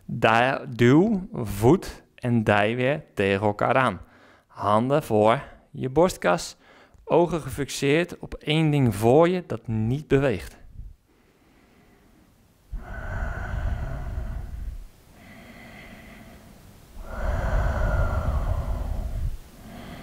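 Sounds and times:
person breathing slowly: 4.1 - 4.5, 6.6 - 7.0, 11.0 - 20.0.

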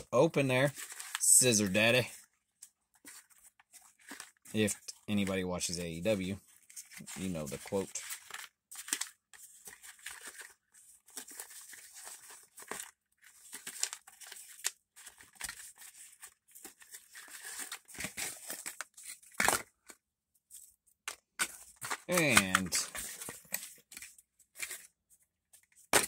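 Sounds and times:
plastic packaging crinkling and tearing: 6.5 - 19.9, 21.4 - 24.9
packaging snap: 21.4 - 22.9.

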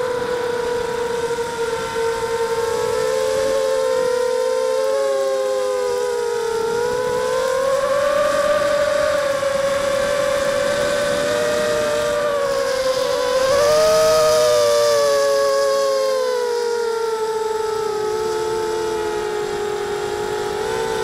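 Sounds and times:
quadcopter motors whining: 0.0 - 21.0
wind hiss: 0.0 - 21.0.

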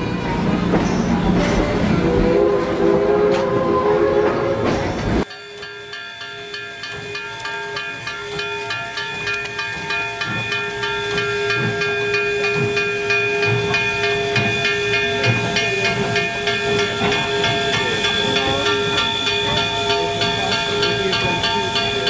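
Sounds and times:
steam hissing from locomotive: 4.9 - 22.0
steady held tones: 5.2 - 22.0.

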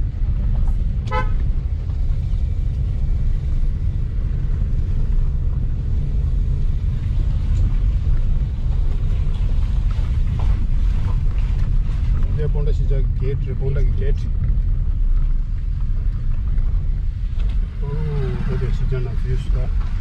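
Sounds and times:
car driving on rough road: 0.0 - 20.0
car horn toot: 1.0 - 1.5.

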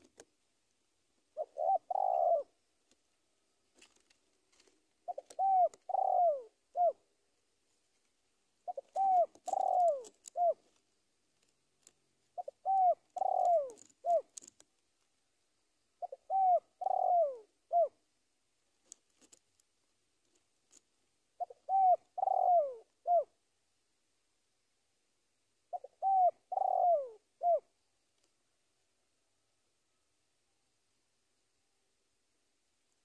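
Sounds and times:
dove cooing: 1.3 - 2.6, 5.0 - 7.1, 8.6 - 10.8, 12.4 - 14.6, 16.0 - 18.0, 21.4 - 23.4, 25.7 - 27.7.

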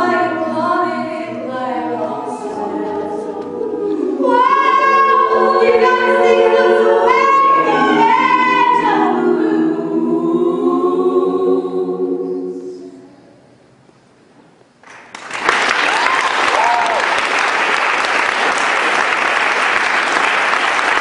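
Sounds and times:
a cappella choir singing: 0.0 - 13.3.

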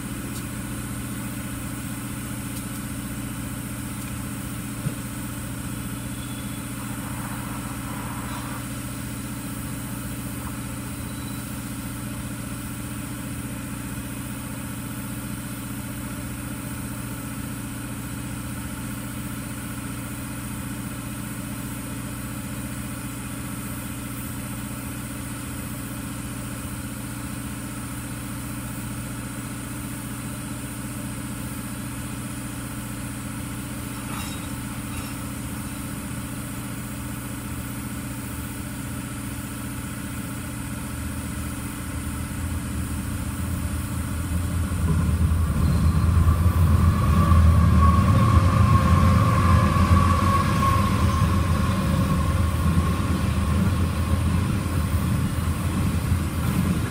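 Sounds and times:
freight train rolling: 3.1 - 12.2, 33.8 - 36.3, 41.7 - 56.9
high steady tone: 5.3 - 11.7, 43.5 - 55.8.

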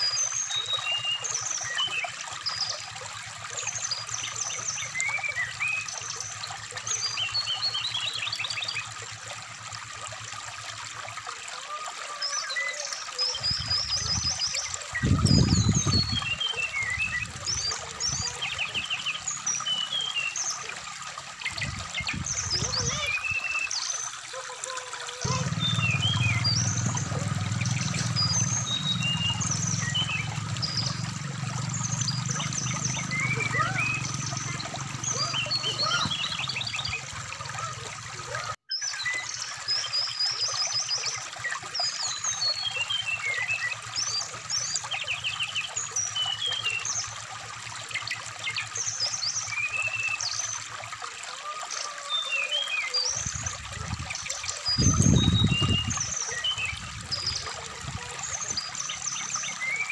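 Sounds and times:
bird singing whistles and trills: 0.0 - 2.8, 54.7 - 57.6
stream water rushing: 0.0 - 59.9.

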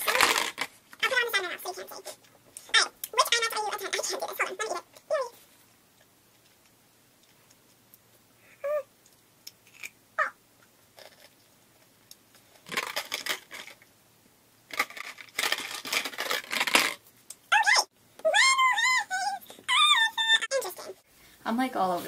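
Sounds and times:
woman squeaking: 17.5 - 20.9.

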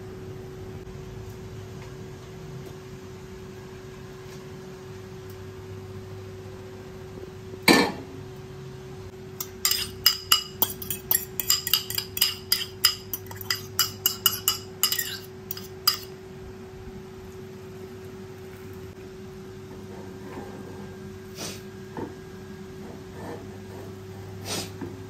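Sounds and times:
metal spoon clinking on bowl: 9.4 - 16.1.

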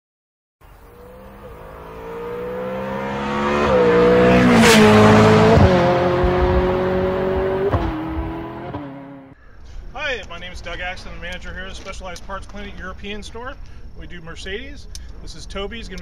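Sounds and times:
car engine accelerating: 0.7 - 9.4
car whooshing by: 1.1 - 9.3.

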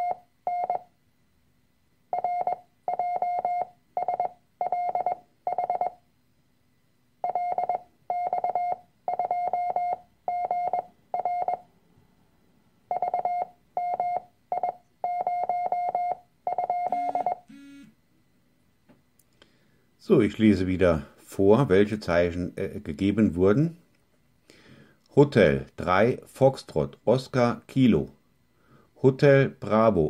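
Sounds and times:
morse code tone: 0.0 - 0.9, 2.2 - 6.0, 7.2 - 11.6, 12.9 - 17.9
short low-pitched beeps: 0.0 - 0.9, 2.1 - 6.0, 7.2 - 11.6, 12.9 - 17.9.

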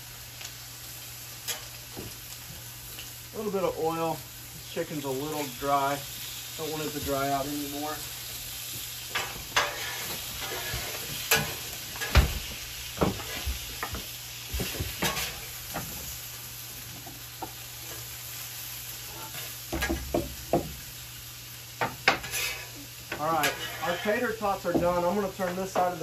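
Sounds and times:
food sizzling on a griddle: 0.0 - 26.0
metal spatula scraping and clacking: 9.1 - 12.2, 15.0 - 15.4, 22.0 - 25.0.

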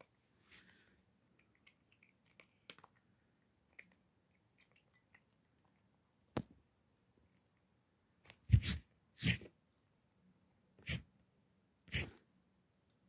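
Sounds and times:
cat crunching dry kibble: 1.3 - 4.0.

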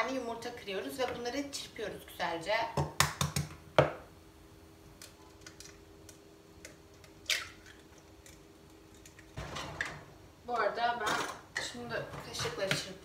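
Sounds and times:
eggshell crackling: 4.9 - 9.4.

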